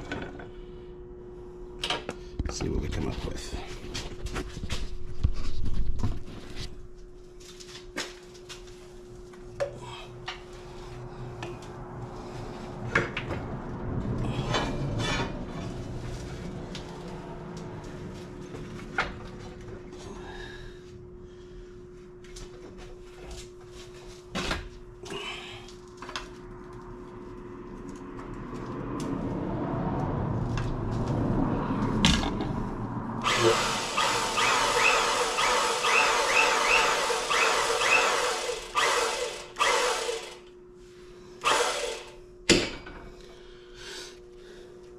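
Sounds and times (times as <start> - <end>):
steady hum: 0.0 - 44.9
hydraulic pump running loudly: 33.2 - 40.5, 41.4 - 42.2.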